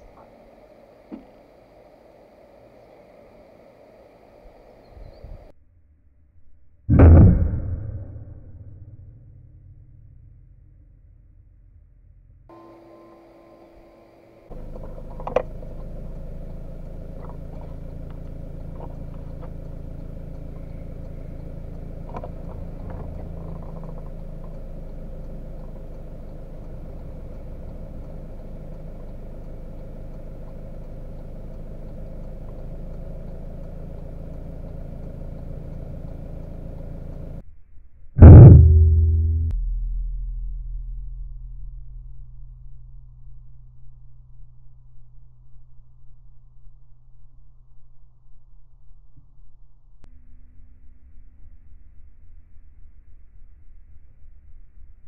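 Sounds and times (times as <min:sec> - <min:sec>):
steady low hum: 0:00.0 - 0:55.0
air rifle shot: 0:06.9 - 0:08.9.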